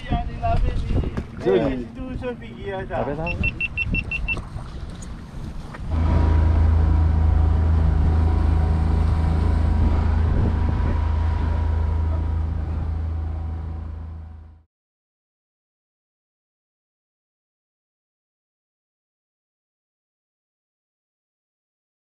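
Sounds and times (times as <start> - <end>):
boat engine droning: 0.8 - 14.7.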